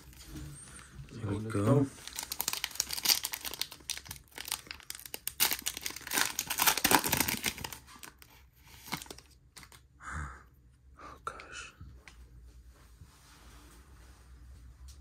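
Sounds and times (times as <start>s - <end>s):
foil pack tearing and crinkling: 2.0s - 8.2s.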